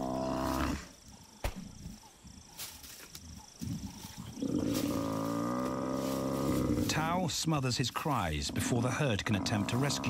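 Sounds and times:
buffalo bellowing: 4.4 - 7.0.

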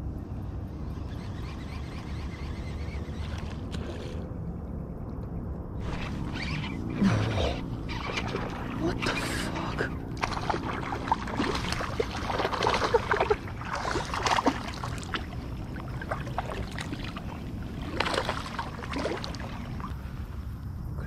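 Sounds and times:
fish splashing in water: 5.9 - 20.1.

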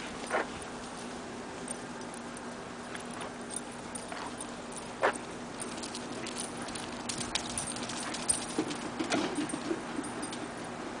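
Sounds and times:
dogs running and tussling: 2.9 - 10.4.

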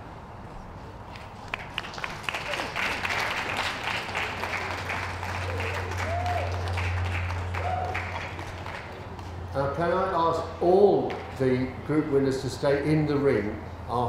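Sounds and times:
audience applauding: 1.4 - 9.5.

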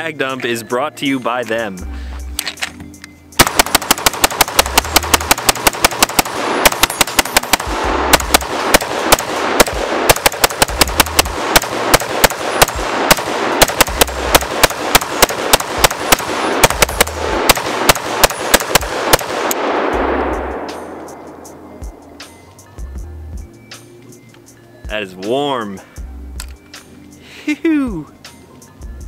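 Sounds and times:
rapid gunshots: 3.4 - 20.7.

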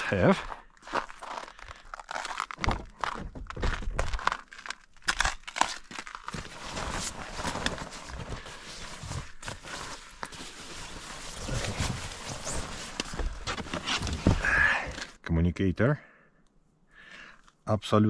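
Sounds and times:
nylon jackets rustling: 6.2 - 14.4.

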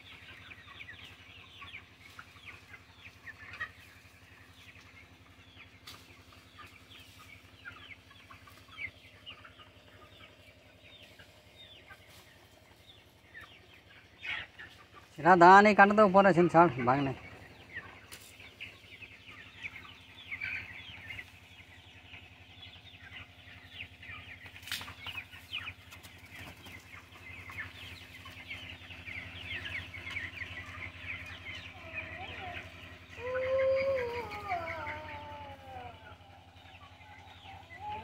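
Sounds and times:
chicks peeping: 0.0 - 38.0
drawn-out descending chicken call: 16.6 - 38.0.

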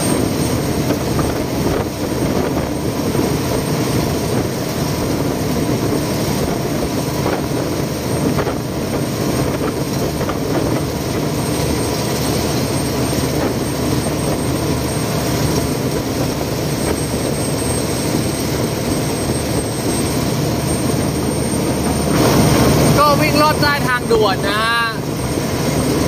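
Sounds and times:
boat engine running: 0.0 - 26.0
water churning along hull: 0.0 - 26.0.

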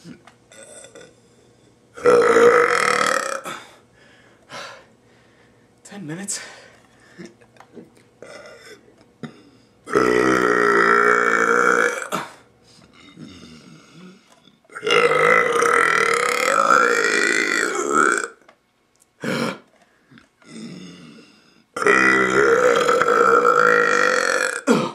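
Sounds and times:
man burping loudly: 0.0 - 1.2, 2.0 - 3.7, 8.2 - 12.4, 13.0 - 18.4, 19.2 - 19.7, 20.4 - 21.2, 21.8 - 24.9.

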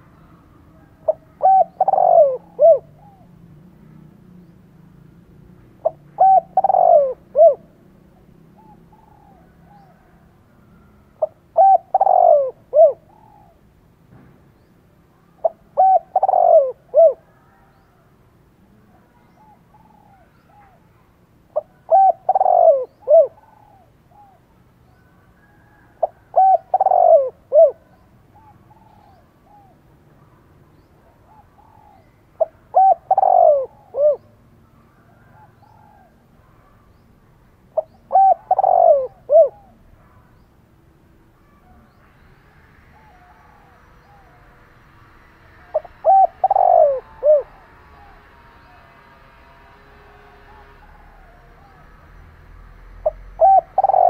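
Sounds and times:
dove cooing: 0.7 - 3.4, 5.8 - 7.8, 8.5 - 13.7, 15.3 - 17.7, 19.0 - 36.9, 37.8 - 40.4, 45.6 - 48.8, 53.0 - 54.0.

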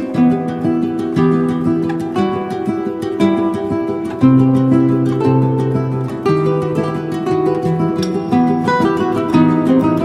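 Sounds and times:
plucked guitar notes: 0.0 - 10.0.

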